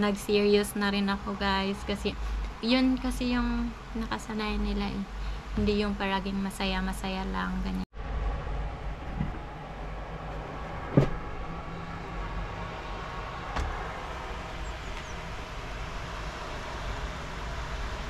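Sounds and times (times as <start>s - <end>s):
traffic on wet street: 0.2s - 6.1s, 8.0s - 18.0s
rain: 12.6s - 18.0s.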